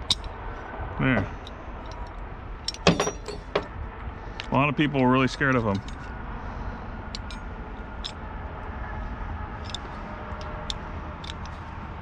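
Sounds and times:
steady low rumble: 0:00.0 - 0:12.0
light metallic clicks: 0:09.6 - 0:11.7.

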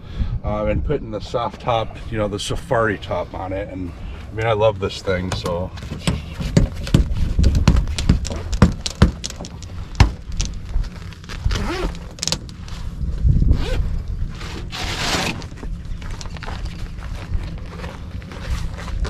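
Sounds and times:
fabric rustling: 0:05.9 - 0:19.0.

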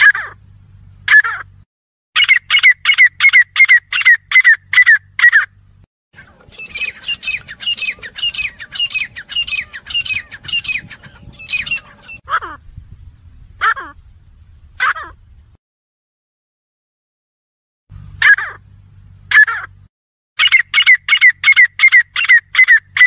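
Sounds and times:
birds calling repeated notes: 0:02.2 - 0:05.6, 0:06.2 - 0:12.7, 0:18.0 - 0:23.0.

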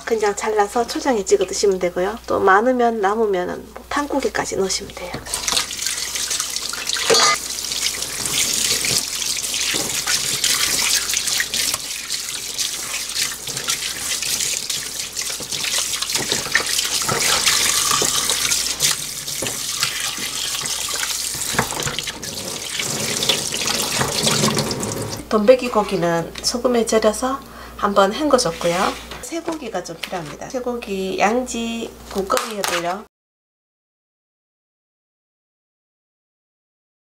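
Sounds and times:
water splashing over hands: 0:05.4 - 0:25.2.

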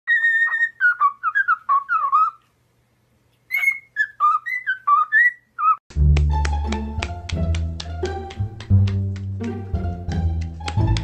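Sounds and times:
parrot whistling a tune: 0:00.1 - 0:02.4, 0:03.5 - 0:05.8.

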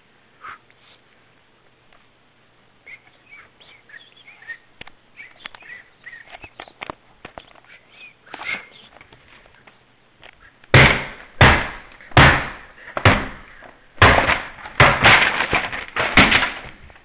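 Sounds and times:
loud thumps: 0:10.7 - 0:17.0.

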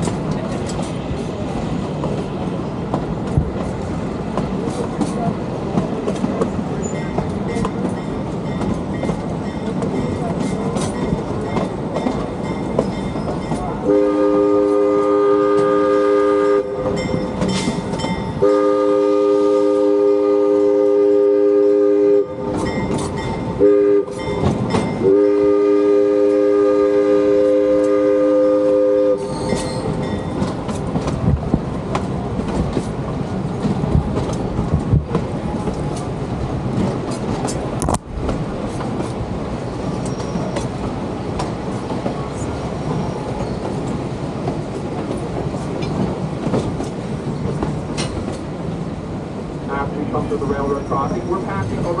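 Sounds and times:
train wheel clatter: 0:00.0 - 0:15.9, 0:16.8 - 0:18.9, 0:22.4 - 0:25.3, 0:27.4 - 0:48.9
locomotive whistle blasts: 0:13.9 - 0:17.0, 0:18.4 - 0:22.4, 0:23.6 - 0:24.2, 0:25.0 - 0:30.0.

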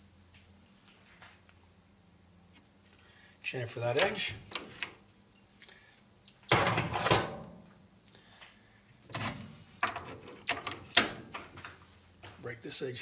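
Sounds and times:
metal tooling clunks and knocks: 0:06.5 - 0:07.6, 0:09.1 - 0:12.4.

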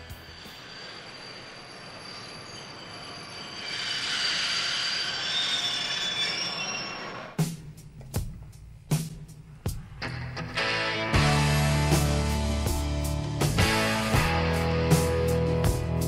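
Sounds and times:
high-pitched metallic squeal: 0:00.0 - 0:07.4.

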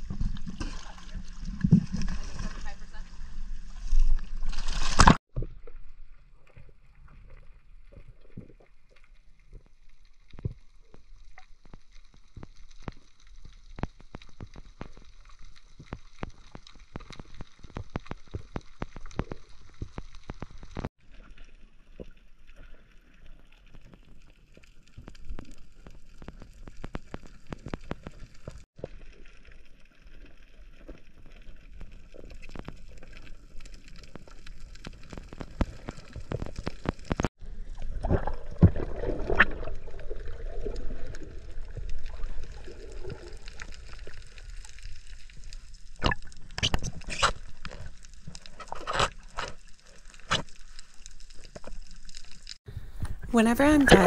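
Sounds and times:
water gurgling and sloshing underwater: 0:00.0 - 0:54.0
sharp crackling clicks: 0:11.2 - 0:20.9, 0:32.1 - 0:37.3.

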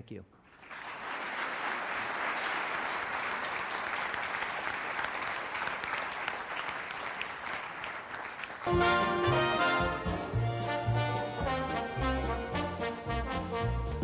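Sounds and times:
audience applauding: 0:00.5 - 0:12.3
loud music: 0:08.7 - 0:14.0.

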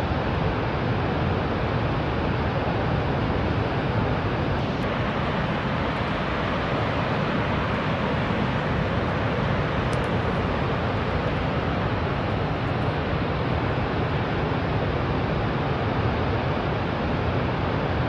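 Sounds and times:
waterfall rushing: 0:04.6 - 0:13.1.

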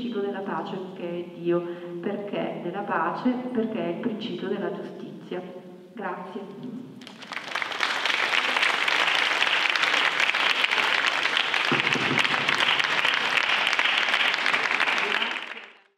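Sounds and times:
audience applauding: 0:07.0 - 0:15.9.

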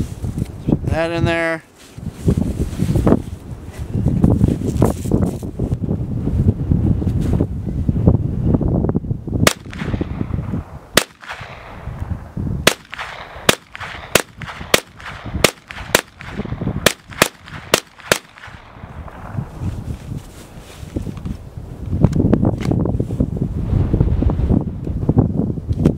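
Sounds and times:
rifle firing single shots: 0:09.4 - 0:11.9, 0:12.6 - 0:19.4.

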